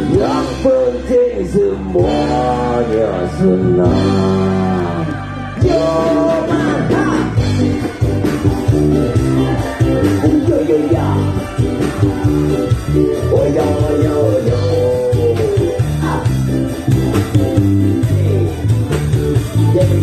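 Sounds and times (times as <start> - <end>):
man singing: 0.0 - 7.9, 9.0 - 16.4, 19.6 - 20.0
bass: 0.0 - 20.0
electric guitar: 0.0 - 20.0
steady beat: 5.6 - 20.0.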